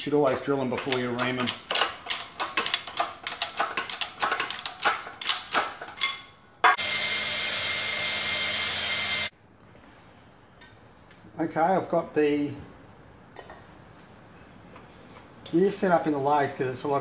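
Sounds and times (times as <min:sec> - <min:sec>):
metallic clicking and clinking: 0:00.2 - 0:06.8
cordless drill running: 0:06.8 - 0:09.3.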